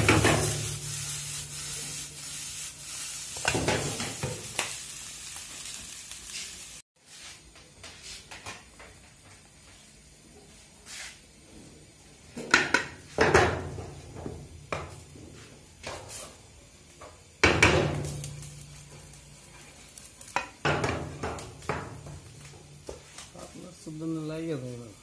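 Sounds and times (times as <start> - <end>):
wooden spatula scraping frying pan: 0.0 - 4.5
light sizzle: 0.0 - 25.0.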